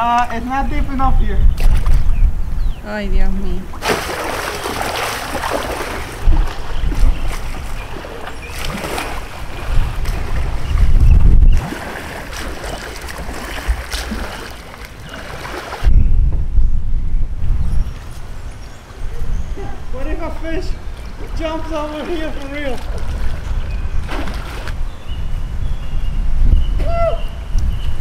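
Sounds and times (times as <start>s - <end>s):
wind buffeting microphone: 0.0s - 28.0s
splashing of shallow water: 3.7s - 15.9s, 21.8s - 24.8s.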